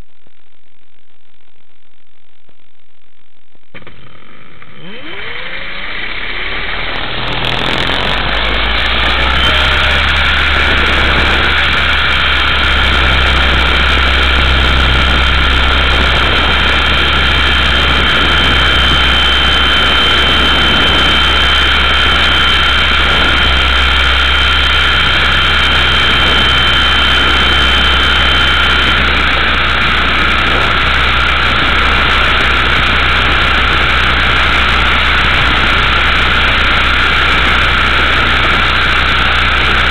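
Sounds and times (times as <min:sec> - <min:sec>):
rc helicopter motor whine: 0:03.7 - 0:39.9.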